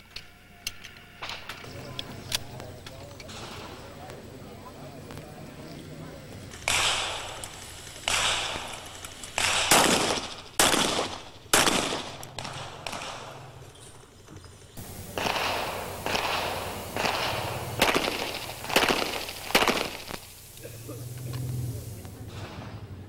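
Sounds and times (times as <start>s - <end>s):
pistol shots with echo: 6.6s - 7.4s, 8.0s - 13.7s, 14.8s - 20.6s.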